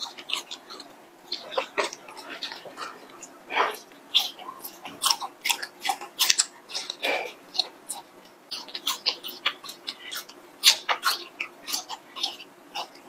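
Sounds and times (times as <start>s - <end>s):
chewing and biting: 0.0s - 13.0s.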